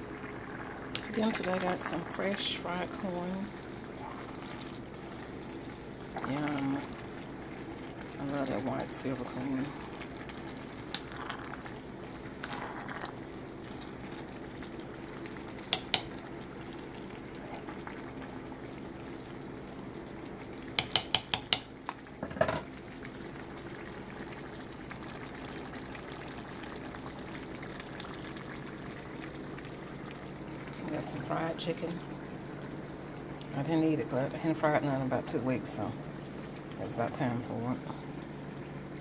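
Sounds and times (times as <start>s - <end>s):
food bubbling and sizzling in pot: 0.0s - 39.0s.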